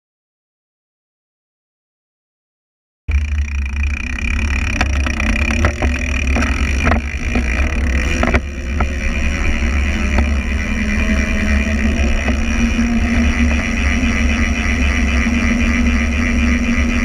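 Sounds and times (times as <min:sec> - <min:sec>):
bike rattling: 0:03.1 - 0:17.0
tyre noise on asphalt: 0:03.2 - 0:14.5.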